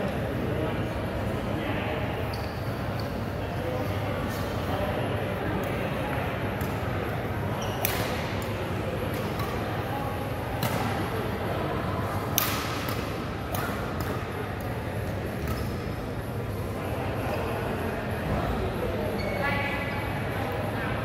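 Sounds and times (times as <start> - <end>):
murmur of voices: 0.0 - 21.0
rackets striking shuttlecocks: 10.6 - 11.0, 12.3 - 14.8.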